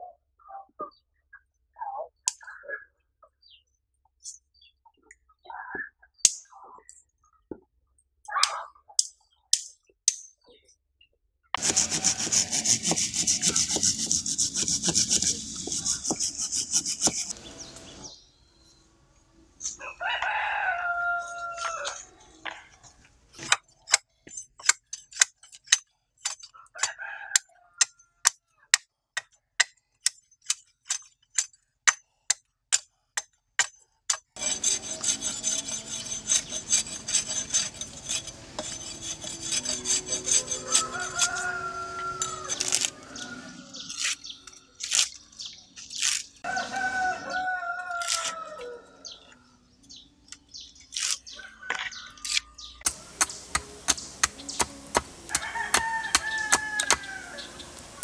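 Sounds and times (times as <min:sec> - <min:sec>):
machete chopping bamboo: 0:11.6 - 0:17.4, 0:27.8 - 0:35.1, 0:52.9 - 0:57.2
rooster crowing: 0:19.8 - 0:22.0, 0:40.0 - 0:43.9, 0:46.4 - 0:49.0, 0:55.2 - 0:57.8.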